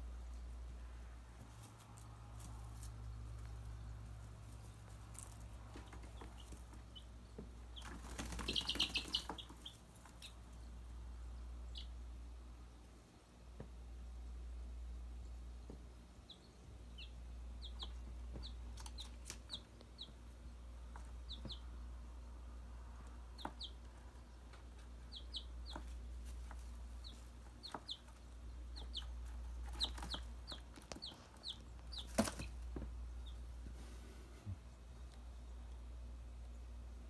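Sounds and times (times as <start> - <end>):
chicks peeping: 1.4 - 12.8, 15.2 - 37.0
steady low hum: 9.5 - 37.0.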